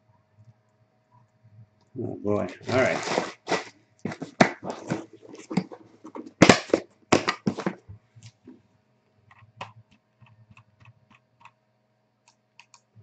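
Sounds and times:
cardboard box scraping rustles: 0:02.6 - 0:06.5
computer keyboard typing: 0:12.3 - 0:12.8.

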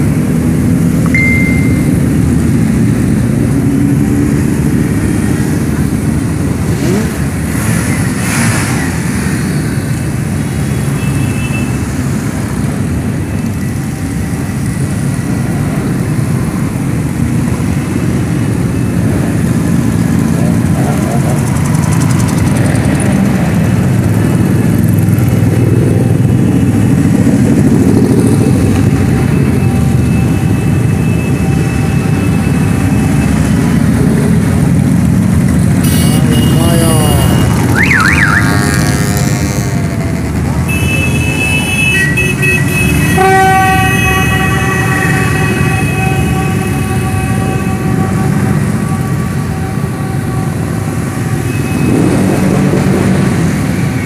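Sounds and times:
motorcycles riding past: 0:11.7 - 0:41.7, 0:42.3 - 0:54.0.

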